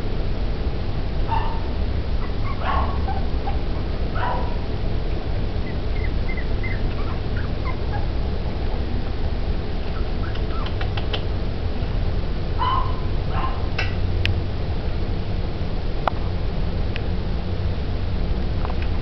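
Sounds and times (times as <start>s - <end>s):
steady low rumble: 0.0s - 19.0s
puppies yelping and whimpering: 2.2s - 8.2s.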